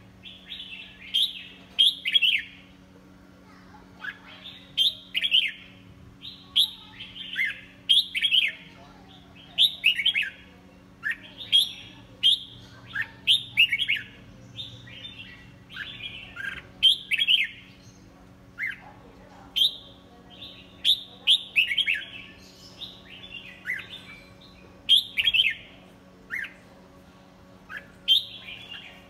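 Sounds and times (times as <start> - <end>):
bird singing whistled notes: 20.8 - 25.7.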